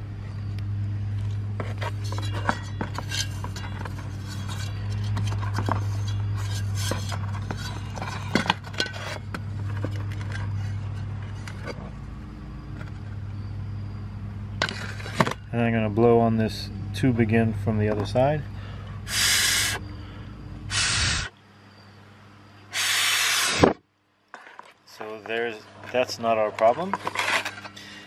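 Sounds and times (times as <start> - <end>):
steady low hum: 0.0 - 28.0
metal clinks and scrapes: 1.6 - 12.0.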